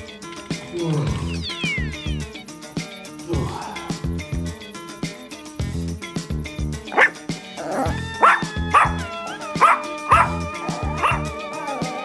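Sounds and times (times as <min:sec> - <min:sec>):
background music with steady beat: 0:00.0 - 0:12.0
dog barking: 0:06.9 - 0:11.9.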